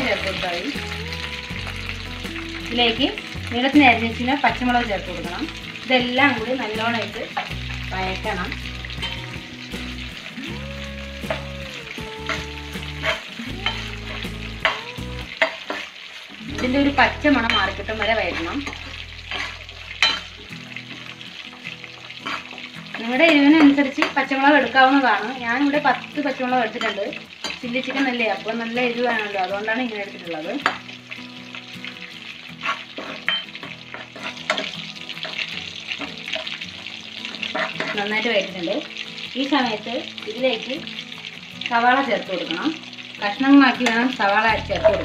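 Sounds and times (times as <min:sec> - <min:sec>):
food sizzling in hot oil: 0:00.0 - 0:45.0
spatula scraping a pan: 0:12.3 - 0:14.8, 0:15.4 - 0:21.2, 0:22.0 - 0:24.1, 0:32.4 - 0:38.4.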